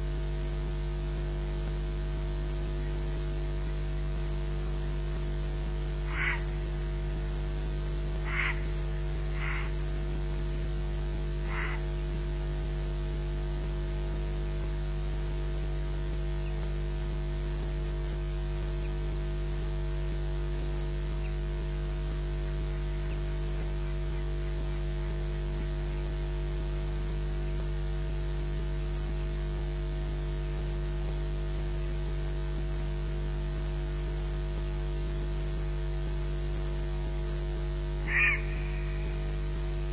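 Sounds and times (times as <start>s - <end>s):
electrical mains hum: 0.0s - 39.9s
static hiss: 0.0s - 39.9s
short bird calls: 6.0s - 6.7s, 8.2s - 9.8s, 11.4s - 11.9s, 38.0s - 39.9s.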